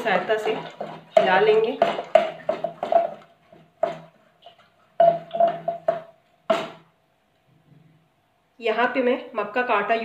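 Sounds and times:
wooden stirrer knocking a pot: 0.0 - 6.9.

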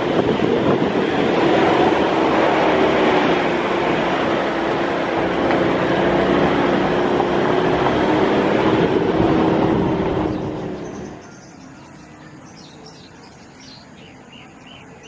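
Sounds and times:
car engine and road noise: 0.0 - 15.0
birds chirping: 9.4 - 15.0.

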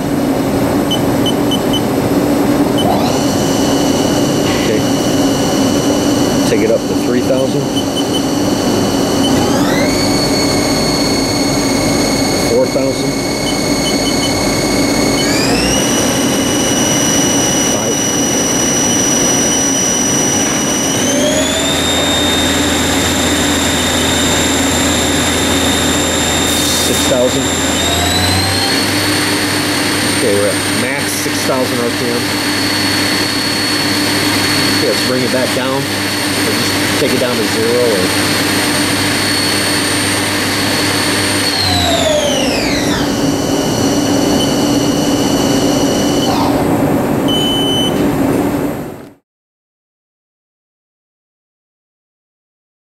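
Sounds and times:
lathe spindle whining: 0.0 - 48.8
low hum: 0.0 - 49.0
brief high tone: 2.8 - 3.4, 4.4 - 5.0, 9.2 - 16.8.

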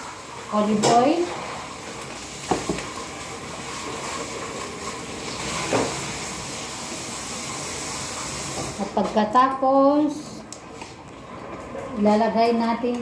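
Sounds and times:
oil hissing in a wok: 0.0 - 9.0.

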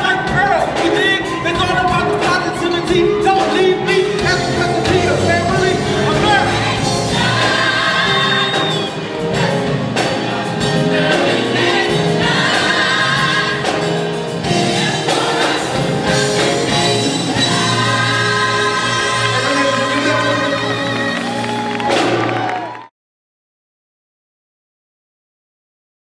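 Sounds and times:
drums and band playing: 0.0 - 22.9
choir singing: 4.5 - 21.6.

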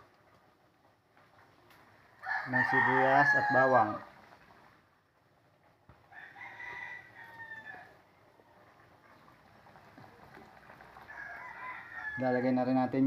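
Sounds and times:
faint rooster crowing: 2.1 - 4.1, 6.1 - 8.9, 10.8 - 13.0.

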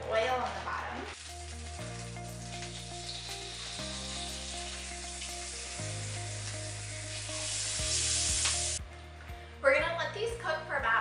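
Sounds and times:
chicken sizzling in hot oil: 0.5 - 8.8.

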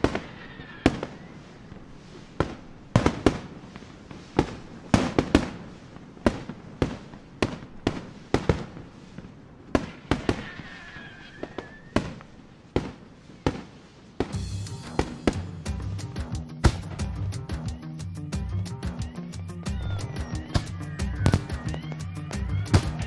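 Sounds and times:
fireworks bursting: 0.0 - 23.0
faint high whistle: 11.2 - 12.0
music: 14.4 - 23.0.

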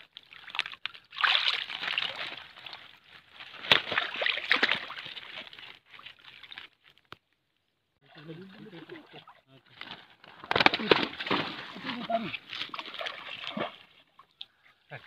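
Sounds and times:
water sloshing and splashing: 0.0 - 14.7.

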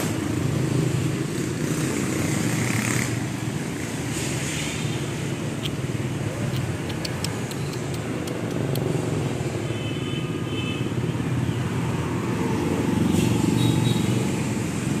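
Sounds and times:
motor vehicle rumble: 0.0 - 9.6
faint sharp clicks: 6.5 - 8.9.

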